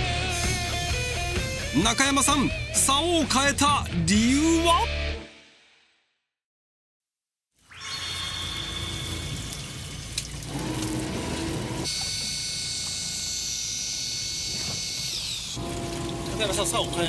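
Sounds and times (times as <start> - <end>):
high whines: 7.6 - 10.0.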